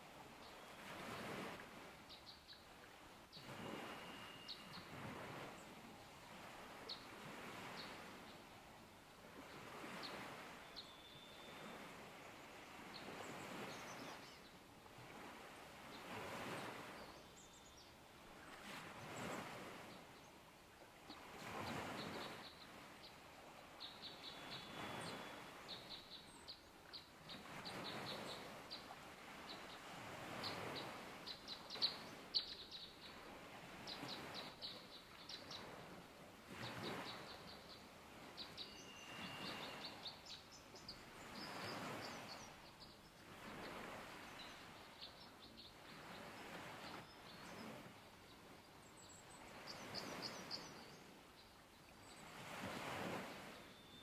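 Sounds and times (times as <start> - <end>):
songbirds chirping: 2.0 - 4.9, 9.5 - 14.6, 15.8 - 35.9, 36.6 - 52.7
brief whistled bird notes: 3.4 - 4.8, 38.6 - 40.0.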